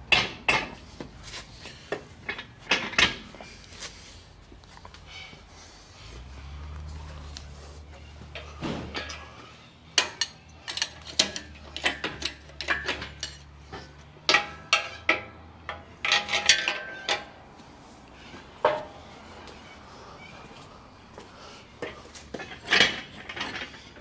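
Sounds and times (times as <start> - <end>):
metal tools clinking on engine: 7.9 - 17.4, 18.2 - 24.0.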